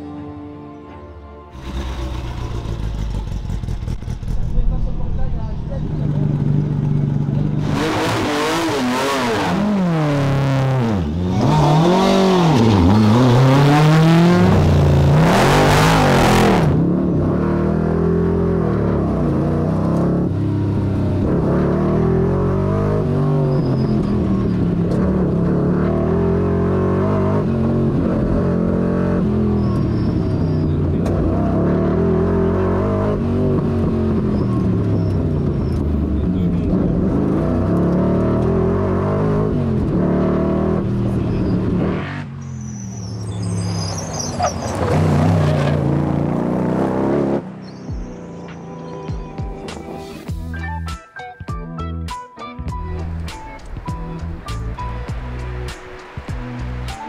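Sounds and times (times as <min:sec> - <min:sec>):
sports car engine accelerating: 0:01.5 - 0:43.6.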